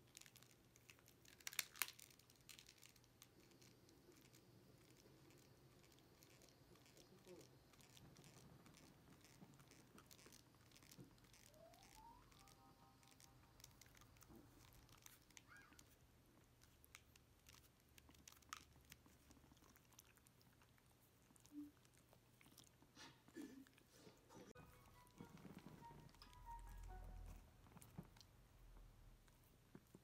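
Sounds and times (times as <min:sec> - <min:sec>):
dog gnawing a chew: 0:00.0 - 0:23.0.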